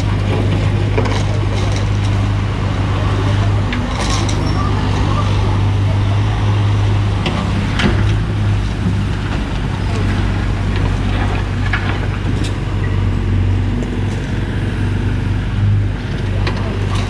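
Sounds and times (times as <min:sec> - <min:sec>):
excavator diesel engine: 0:00.0 - 0:17.0.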